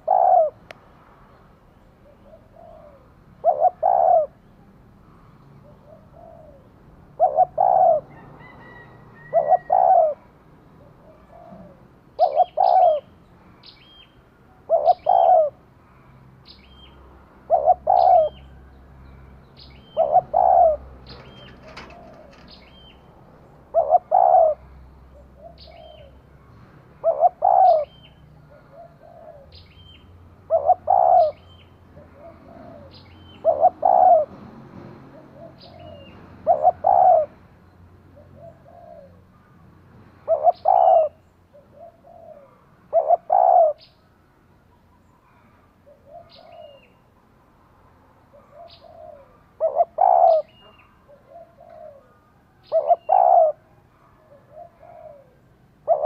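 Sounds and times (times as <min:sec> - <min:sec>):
dove cooing: 0:00.0 - 0:00.6, 0:02.0 - 0:04.5, 0:05.2 - 0:13.1, 0:14.5 - 0:16.0, 0:17.4 - 0:18.7, 0:19.8 - 0:26.4, 0:27.0 - 0:34.4, 0:35.0 - 0:37.4, 0:38.1 - 0:39.5, 0:40.2 - 0:43.9, 0:45.2 - 0:47.0, 0:48.3 - 0:56.0.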